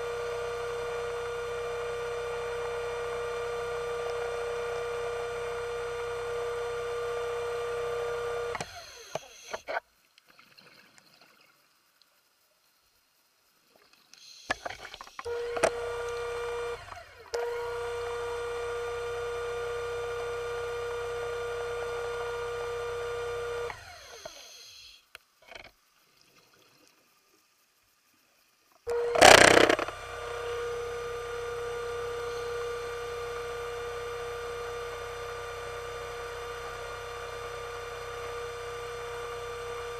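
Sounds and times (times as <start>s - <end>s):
electric motor whining: 0.0s - 9.7s, 14.4s - 25.0s, 28.9s - 39.9s.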